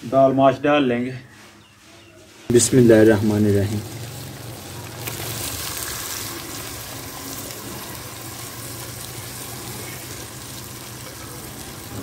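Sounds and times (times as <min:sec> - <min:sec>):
lentils sizzling in hot oil: 0:02.5 - 0:12.0.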